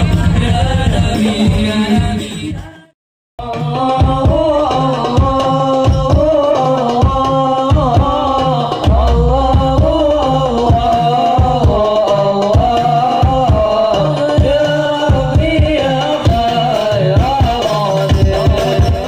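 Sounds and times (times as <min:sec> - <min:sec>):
man singing: 0:00.0 - 0:19.0
frame drums: 0:03.5 - 0:19.0
bass drum: 0:07.0 - 0:13.8.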